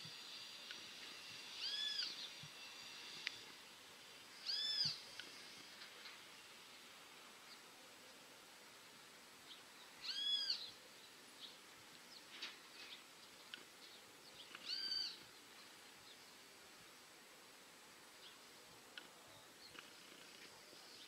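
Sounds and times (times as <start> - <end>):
bird call rising and falling: 1.6 - 2.4, 4.4 - 5.1, 10.0 - 10.8, 14.5 - 15.2.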